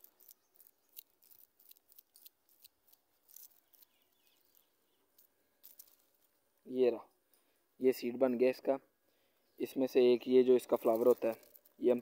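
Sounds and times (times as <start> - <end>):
sunflower head crackling and rustling: 0.0 - 6.7, 10.4 - 12.0.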